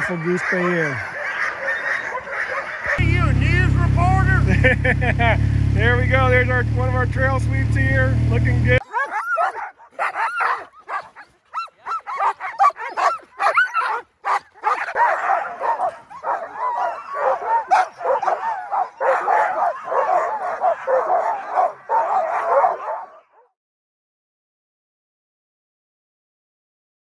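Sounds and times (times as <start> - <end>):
dogs barking and yelping: 0.0 - 3.0, 8.8 - 23.5.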